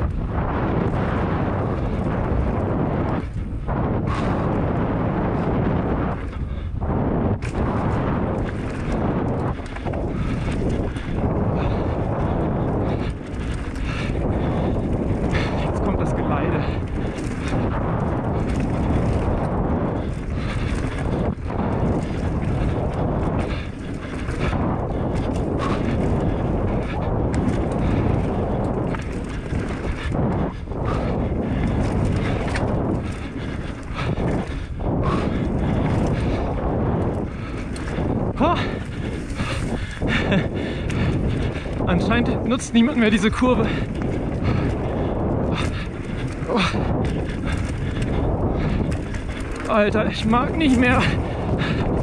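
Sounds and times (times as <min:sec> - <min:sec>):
bike knocking and rattling: 0:00.0 - 0:52.0
tyres on gravelly dirt: 0:00.0 - 0:52.0
wind buffeting microphone: 0:00.0 - 0:52.0
tyres rolling over gravel: 0:41.1 - 0:52.0.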